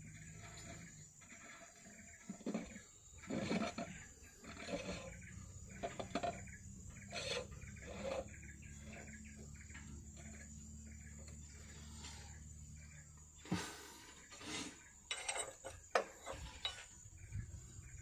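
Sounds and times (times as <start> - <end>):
metallic clinks and scrapes: 0.1 - 12.0, 14.3 - 17.3
low machine hum: 2.0 - 14.3.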